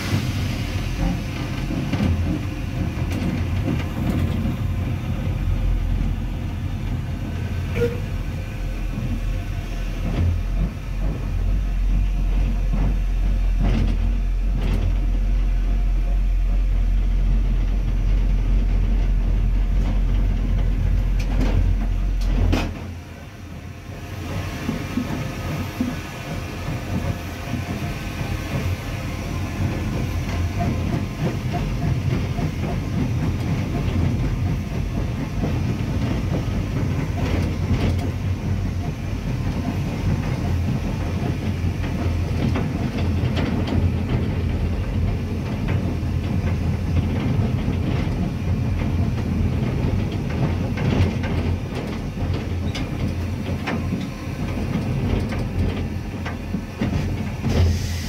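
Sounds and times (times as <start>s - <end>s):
wheels clattering on track: 0.0s - 9.4s, 10.0s - 58.0s
steam locomotive rumbling: 0.0s - 58.0s
clicks from rail joints: 1.0s - 5.4s, 10.0s - 15.4s, 17.5s - 23.0s, 29.6s - 57.8s.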